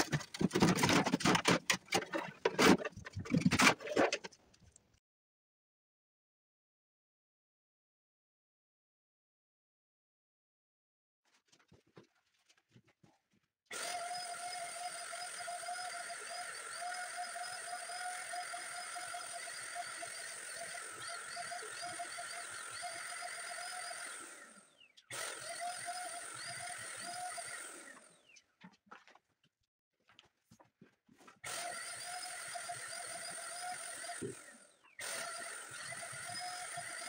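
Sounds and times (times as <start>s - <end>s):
paint sprayer whine and hiss: 13.8s - 28.1s.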